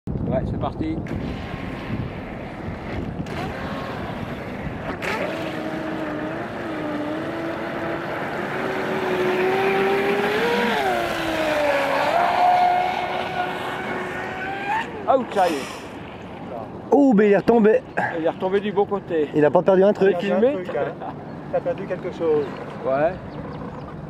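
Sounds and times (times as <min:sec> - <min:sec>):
model boat motor whining: 0:02.9 - 0:15.2.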